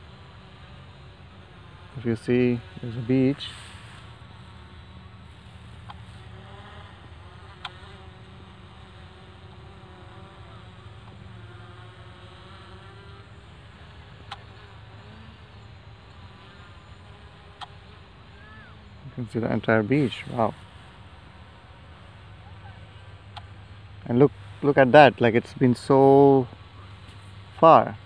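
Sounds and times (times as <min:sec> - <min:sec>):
drone propellers buzzing: 0:00.0 - 0:28.0.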